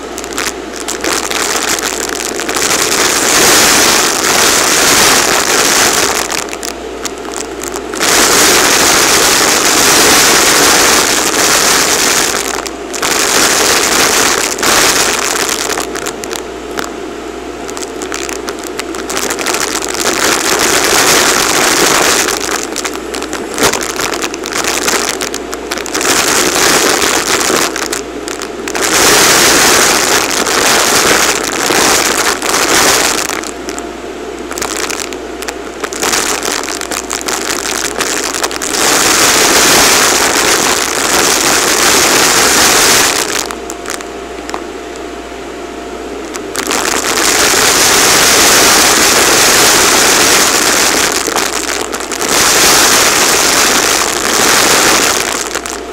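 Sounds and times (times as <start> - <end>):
small bits rattling up hose: 0.0 - 16.9, 17.7 - 33.8, 34.5 - 44.6, 46.3 - 55.8
vacuum cleaner suction: 7.8 - 16.0, 17.7 - 33.7, 34.6 - 43.6.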